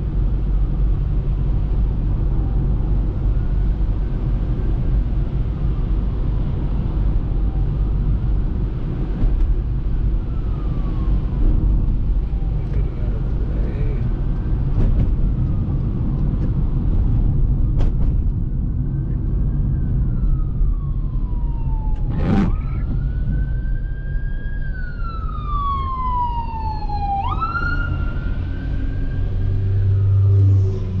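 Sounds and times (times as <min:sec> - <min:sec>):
emergency vehicle siren wailing: 0:05.8 - 0:14.0, 0:17.6 - 0:31.0.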